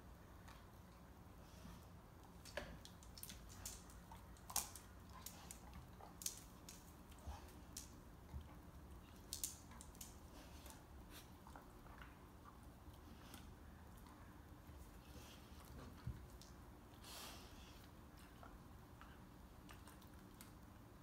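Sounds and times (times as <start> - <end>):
dog claws clicking on tile: 2.2 - 10.8.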